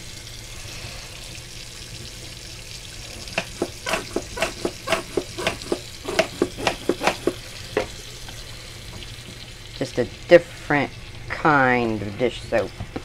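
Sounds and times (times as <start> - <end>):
brush scrubbing wet track: 3.3 - 7.4.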